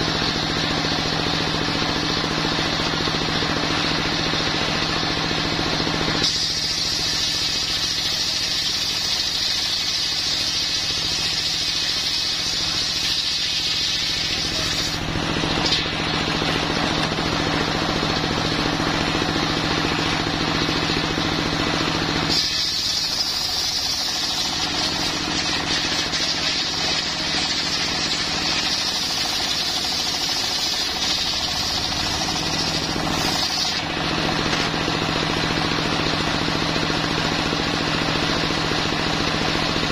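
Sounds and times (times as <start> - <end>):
saw blade whining in wood: 4.8 - 36.1.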